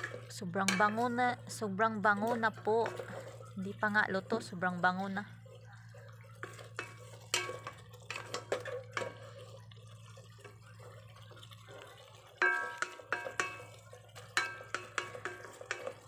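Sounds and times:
spatula scraping and knocking pot: 0.0s - 1.5s, 2.1s - 3.5s, 6.4s - 9.5s, 12.4s - 16.0s
wooden spatula stirring in a pot: 0.0s - 16.0s.

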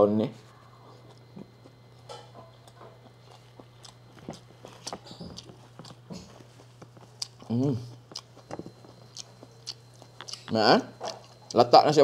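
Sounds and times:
person chewing: 0.8s - 11.6s
wet mouth clicks: 9.1s - 11.6s.

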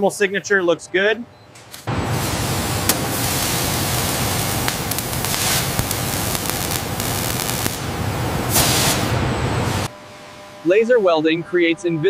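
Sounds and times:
welding hiss and crackle: 1.7s - 9.9s
low hum: 1.9s - 10.6s.

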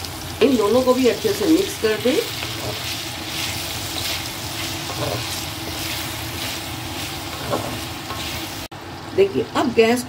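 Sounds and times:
vegetables sizzling in oil: 0.0s - 10.0s
wooden spatula scraping a pan: 2.4s - 8.6s.

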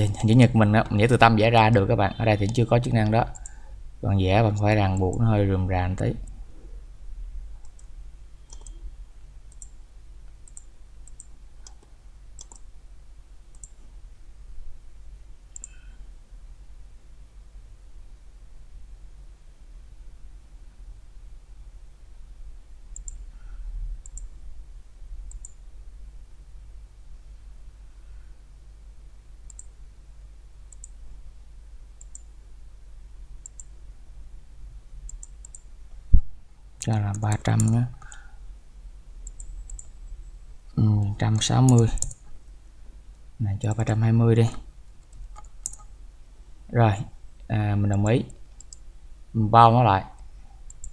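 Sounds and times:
low steady hum: 0.0s - 50.9s
mouse buttons clicking: 7.6s - 8.8s, 10.4s - 12.6s.

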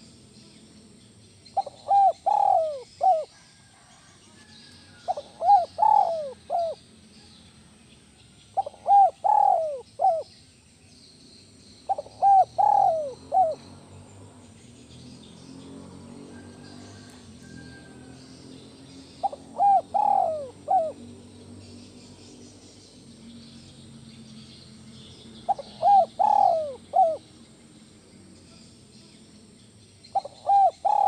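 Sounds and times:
dove cooing: 1.5s - 4.0s, 5.0s - 6.9s, 8.6s - 10.3s, 11.9s - 14.4s, 16.2s - 22.1s, 25.4s - 27.4s, 30.1s - 31.0s.

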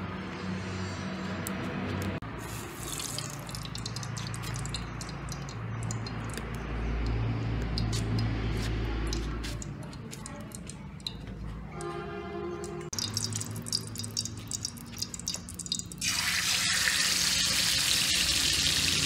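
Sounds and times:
oil crackling and popping: 2.4s - 11.4s, 12.9s - 19.0s.

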